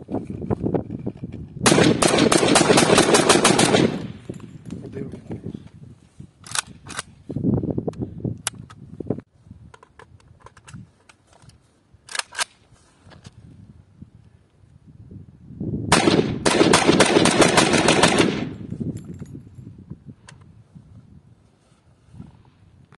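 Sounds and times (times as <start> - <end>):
rifle shots: 1.6 - 4.3, 15.9 - 18.6.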